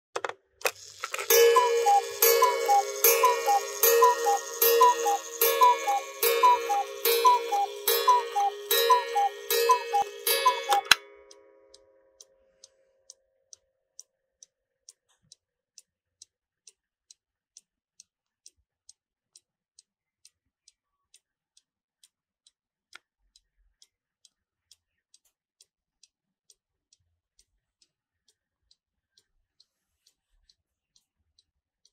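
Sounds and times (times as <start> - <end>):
clock mechanism click: 0.2 - 11.0
clock ticking: 0.2 - 11.0
cuckoo clock call: 0.6 - 11.0.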